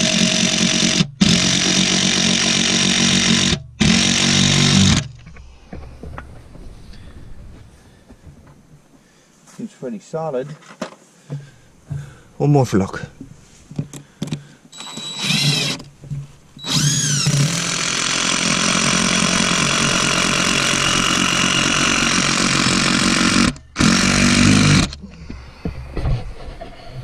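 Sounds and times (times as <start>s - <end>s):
impact driver driving screw: 0.0s - 5.3s, 14.3s - 15.9s, 16.6s - 25.0s.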